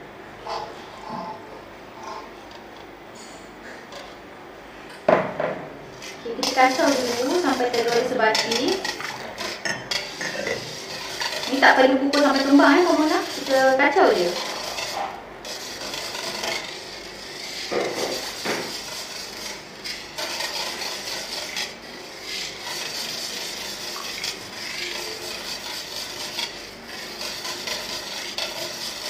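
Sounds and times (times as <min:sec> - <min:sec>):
whisk scraping metal bowl: 0:05.9 - 0:29.0.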